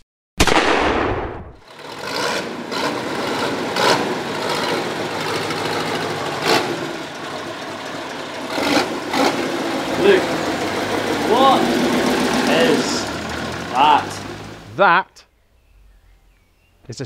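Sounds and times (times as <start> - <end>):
diesel tractor engine idling: 1.7 - 14.9.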